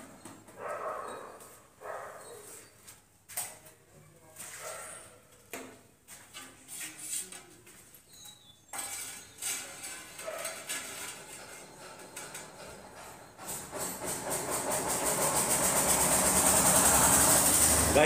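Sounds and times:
trowel scraping: 0:06.1 - 0:18.0
trowel clinking on mortar pan: 0:08.7 - 0:12.8.

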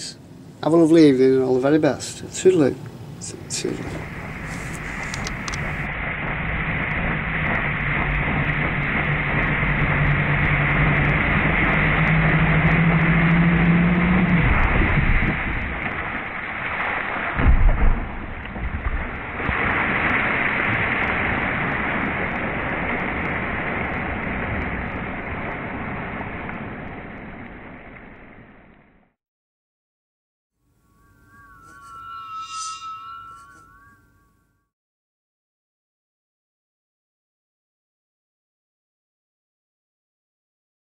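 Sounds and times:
jet-wash water rushing: 0:02.2 - 0:17.6
low buffeting thump: 0:17.4 - 0:19.1.

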